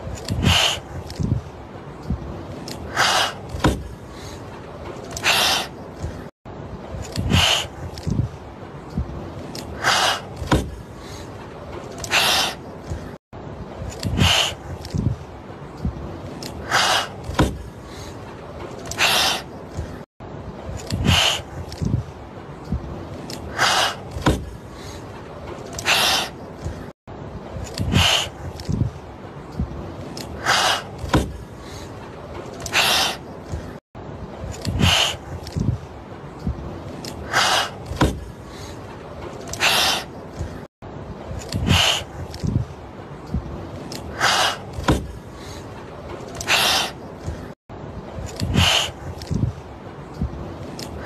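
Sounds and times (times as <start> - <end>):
kittens hissing: 18.9 - 19.5, 25.8 - 26.4, 27.8 - 28.4, 30.4 - 30.9, 37.3 - 37.8, 39.6 - 40.1, 46.4 - 47.0, 48.5 - 49.0.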